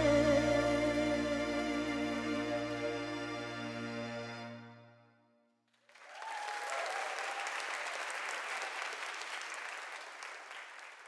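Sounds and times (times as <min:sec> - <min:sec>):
singing with string orchestra: 0:00.0 - 0:04.9
congregation applauding: 0:05.7 - 0:11.0.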